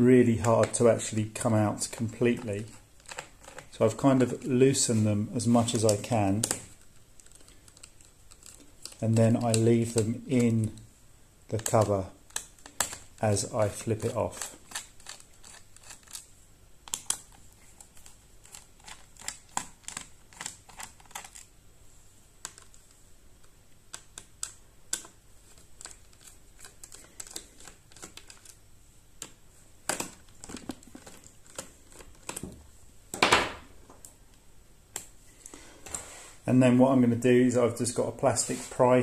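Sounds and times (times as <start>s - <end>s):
brief rubbing rustle: 35.5s - 36.5s, 38.3s - 39.0s.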